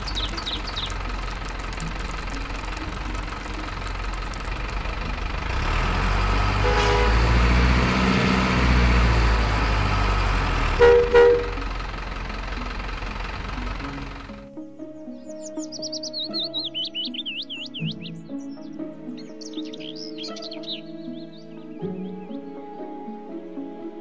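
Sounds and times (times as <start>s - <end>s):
toy truck engine running: 0.0s - 6.6s
horn toots: 6.5s - 8.1s, 10.7s - 11.6s.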